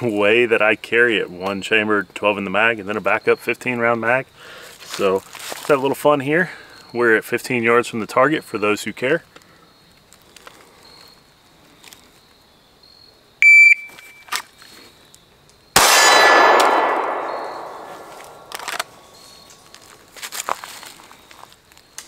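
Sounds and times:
shot timer beep: 0:13.4 - 0:14.3
steel target ringing: 0:15.8 - 0:18.5
pistol shot: 0:15.8 - 0:18.9.

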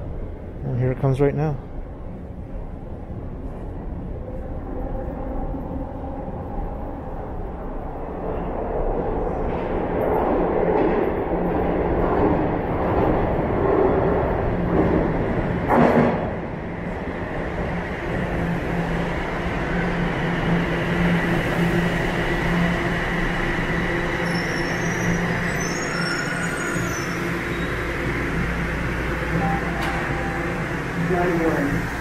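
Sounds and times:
subway train rumbling: 0:00.0 - 0:32.0
faint brake squeals: 0:24.2 - 0:27.8.

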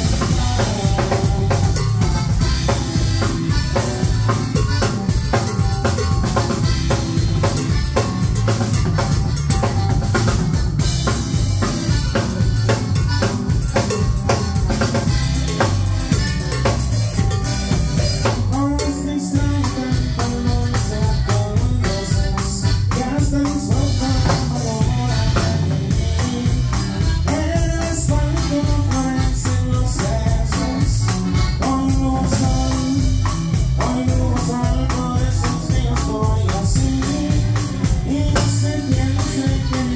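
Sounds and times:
accordion melody: 0:00.0 - 0:39.9
bass line: 0:00.0 - 0:39.9
drum kit beat: 0:00.0 - 0:39.9.

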